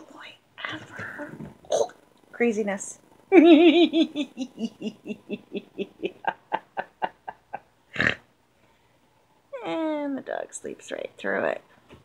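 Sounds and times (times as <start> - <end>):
woman laughing: 3.3 - 7.7.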